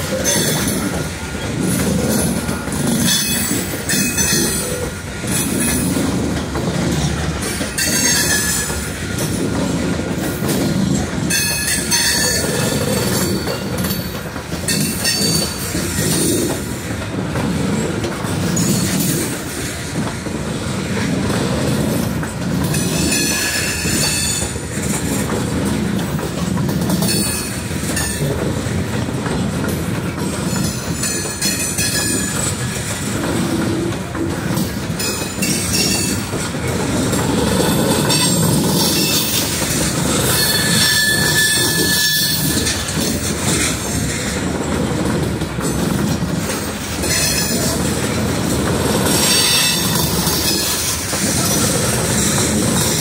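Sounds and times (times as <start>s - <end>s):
train wheels rumbling on rail: 0.0s - 53.0s
wheels squealing: 37.3s - 44.4s.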